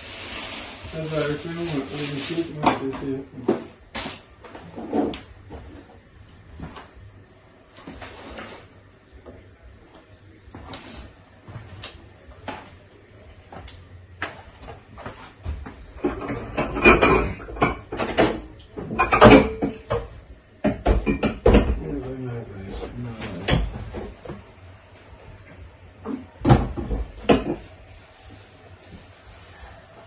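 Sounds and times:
dishes and cutlery clinking: 0:16.0 - 0:21.8, 0:26.1 - 0:27.7.

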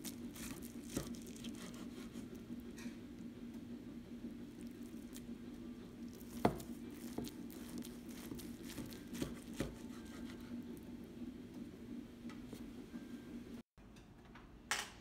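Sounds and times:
knife slicing through meatloaf: 0:00.0 - 0:02.4, 0:06.1 - 0:10.6.

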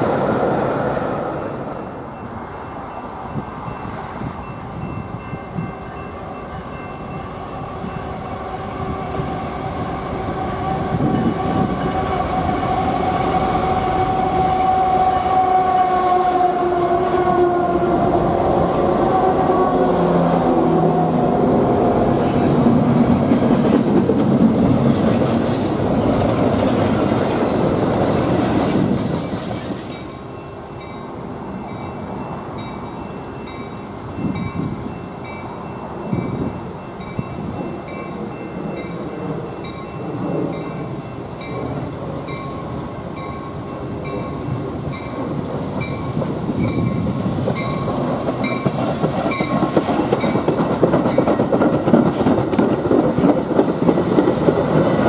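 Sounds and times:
freight train rolling past: 0:00.0 - 0:55.0
crossing warning bell ringing: 0:02.0 - 0:08.4, 0:29.2 - 0:50.5
train wheel noise: 0:03.1 - 0:55.0.

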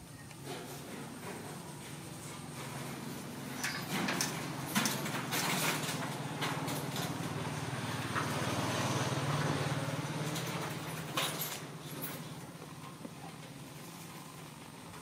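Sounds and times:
low engine hum: 0:05.9 - 0:11.2.

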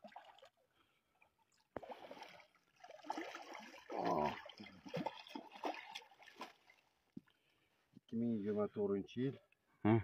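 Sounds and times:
fish thrashing and splashing: 0:01.9 - 0:06.9.

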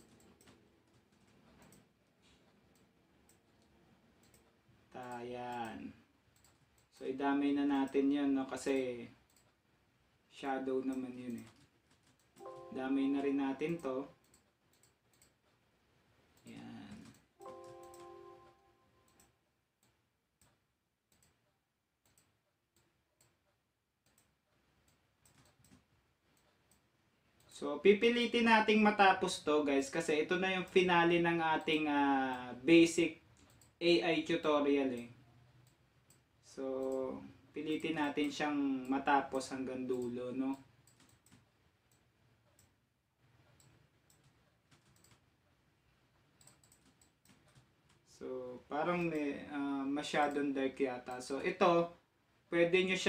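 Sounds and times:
computer mouse clicks: 0:00.0 - 0:09.6, 0:10.7 - 0:15.6, 0:16.3 - 0:18.1, 0:19.0 - 0:27.6, 0:30.0 - 0:33.8, 0:34.9 - 0:45.5, 0:46.2 - 0:48.0, 0:50.1 - 0:50.5.

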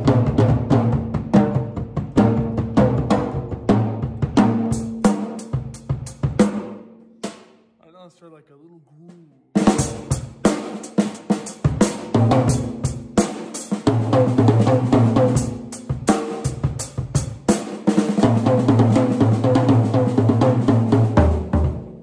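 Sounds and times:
drum kit played fast: 0:00.0 - 0:08.2, 0:09.0 - 0:22.0
tom drums ringing: 0:00.0 - 0:13.2.

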